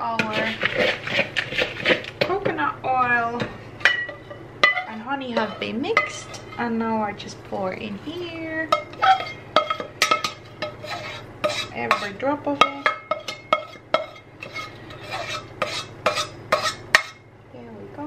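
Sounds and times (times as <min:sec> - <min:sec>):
spoon scraping and clinking dish: 0:03.9 - 0:06.7, 0:08.7 - 0:17.2.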